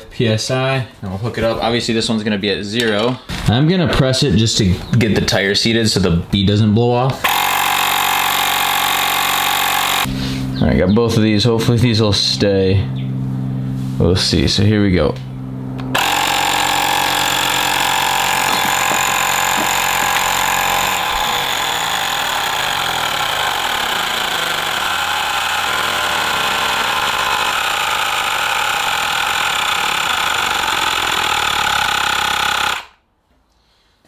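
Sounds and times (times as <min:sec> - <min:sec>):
tire inflator compressor running: 0:07.2 - 0:10.6, 0:11.7 - 0:33.0.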